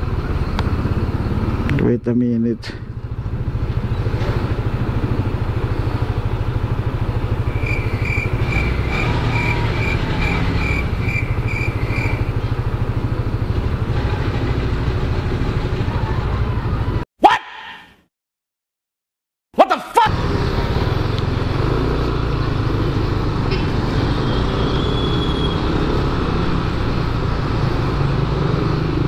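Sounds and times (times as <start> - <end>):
scooter engine idling: 9.5 - 17.0.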